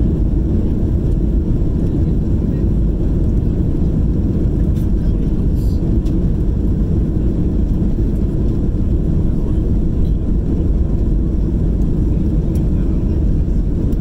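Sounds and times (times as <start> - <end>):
jet engines rumbling: 0.0 - 14.0.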